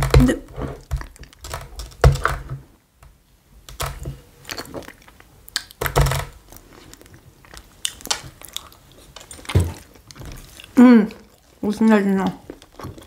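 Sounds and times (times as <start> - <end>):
person chewing: 4.3 - 5.8, 6.4 - 13.0.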